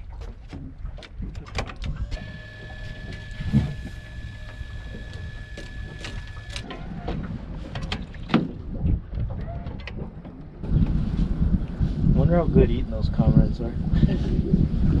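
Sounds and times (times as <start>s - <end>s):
wind buffeting microphone: 0.0s - 15.0s
high-pitched whine: 2.1s - 6.7s.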